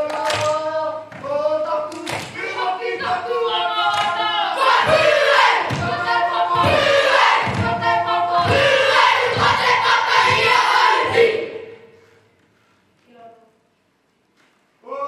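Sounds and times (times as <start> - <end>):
children chanting in unison: 2.4 - 11.9
low thumps: 4.7 - 11.4.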